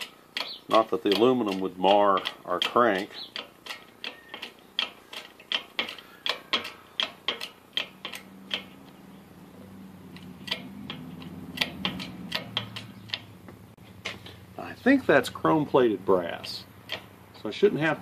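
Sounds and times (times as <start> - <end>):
hydraulic press pump clicks: 0.0 - 9.0, 10.1 - 13.3
steady low hum: 0.0 - 18.0.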